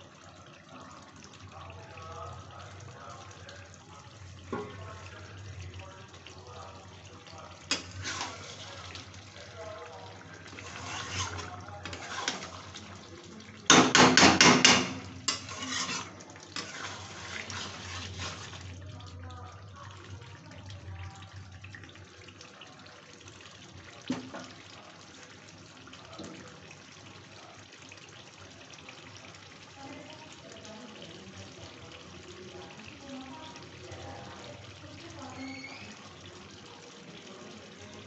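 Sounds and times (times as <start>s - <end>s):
curry simmering and sizzling: 0.0s - 38.0s
metal spatula scraping a metal pan: 7.7s - 8.7s, 10.5s - 12.8s, 14.1s - 18.7s.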